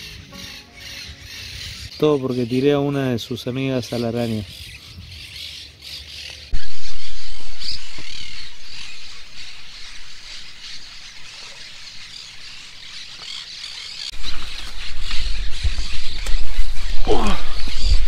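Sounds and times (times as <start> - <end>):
birds chirping and calling: 0.0 - 18.0
loud low rumble: 6.6 - 10.4.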